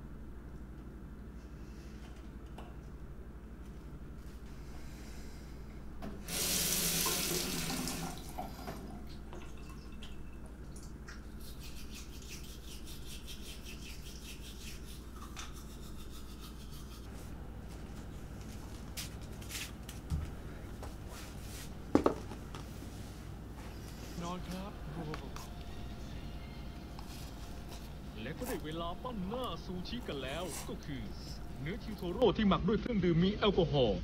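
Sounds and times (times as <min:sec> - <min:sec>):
tap water running into sink: 0:06.3 - 0:10.2
toothbrush scrubbing teeth: 0:11.2 - 0:17.1, 0:27.0 - 0:32.2
low hum: 0:20.2 - 0:33.1.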